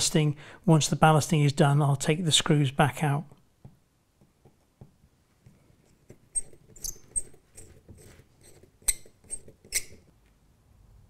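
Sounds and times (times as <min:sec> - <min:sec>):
screw squeaking and clicking: 0:06.0 - 0:10.2.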